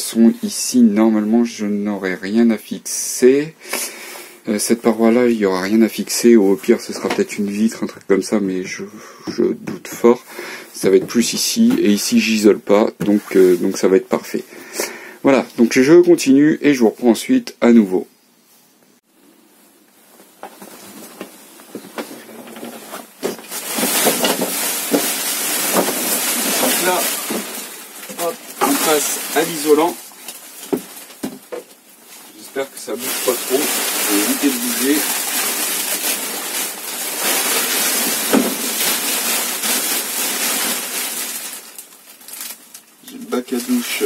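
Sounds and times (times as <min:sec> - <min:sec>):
foil insulation rustling and crackling: 0:20.2 - 0:44.0.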